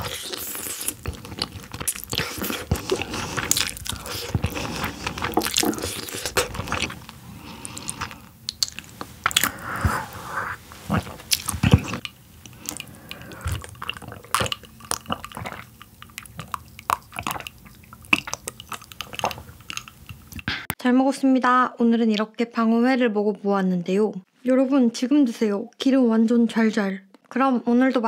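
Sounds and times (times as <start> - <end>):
sips and swallows: 0.0 - 20.4
close chewing and wet mouth sounds: 0.0 - 20.5.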